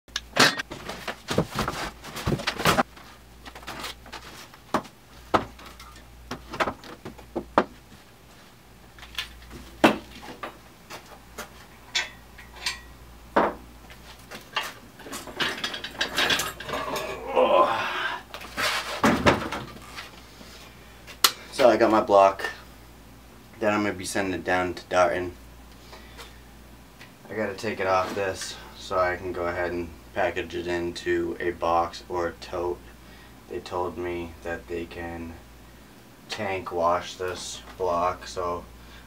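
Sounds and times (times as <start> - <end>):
rustling handling noise: 0.6 - 12.6.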